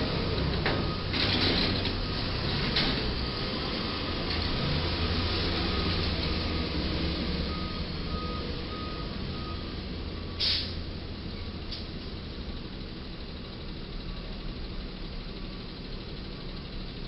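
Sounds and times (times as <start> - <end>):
heavy truck engine running: 0.0 - 17.0
reversing beeper: 4.9 - 10.4
short sharp hiss: 10.4 - 10.8.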